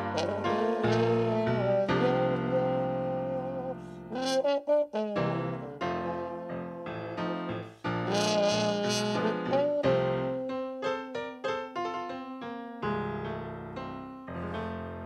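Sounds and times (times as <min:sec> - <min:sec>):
instrumental background music: 0:00.0 - 0:15.0.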